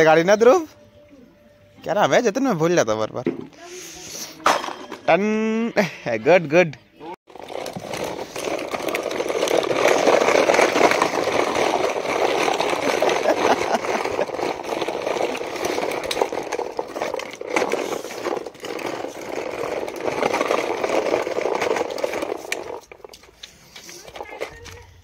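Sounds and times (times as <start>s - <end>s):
toy truck wheels rolling on concrete: 7.3s - 25.0s.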